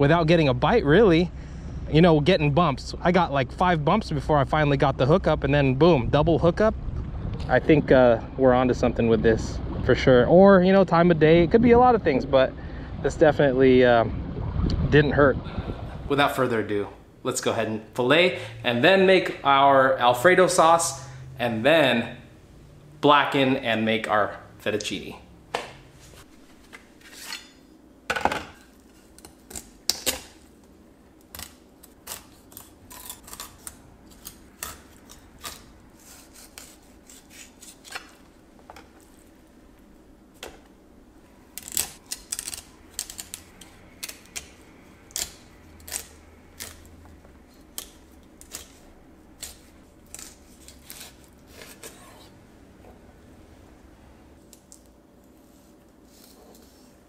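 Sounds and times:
blade scraping: 0:27.0 - 0:27.7.

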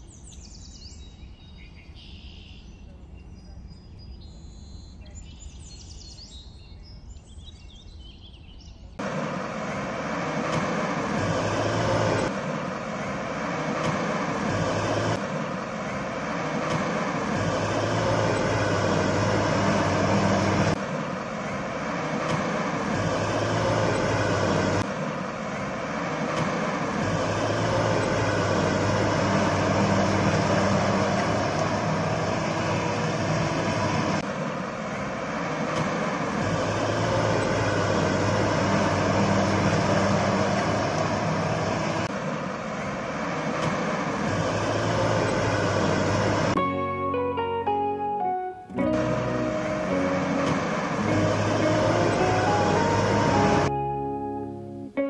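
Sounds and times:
heavy vehicle engine rumble: 0:00.0 - 0:55.0
outdoor ambience: 0:00.0 - 0:55.0.

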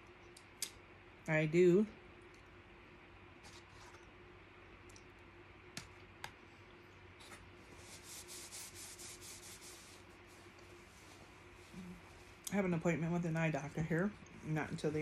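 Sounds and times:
paper napkin rustling: 0:07.2 - 0:12.3.

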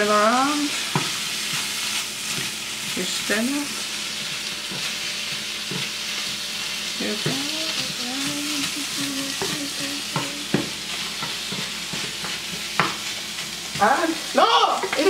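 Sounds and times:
food sizzling in a frying pan: 0:00.0 - 0:15.0
spoon knocking against pan: 0:09.4 - 0:13.0.

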